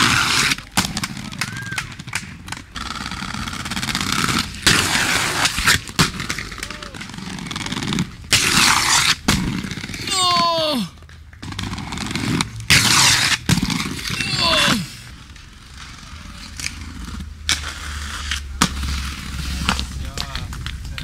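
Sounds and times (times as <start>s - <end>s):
inline skates grinding on concrete: 0.0s - 21.0s
person shouting: 6.6s - 7.0s, 10.1s - 11.0s, 14.1s - 15.0s.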